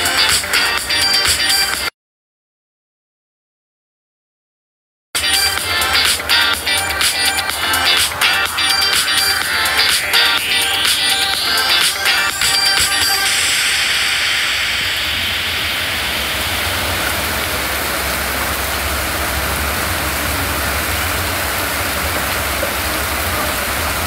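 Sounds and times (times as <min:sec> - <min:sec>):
heavy rain pouring: 0:00.0 - 0:01.9, 0:05.2 - 0:24.0
low rumble: 0:13.1 - 0:22.4.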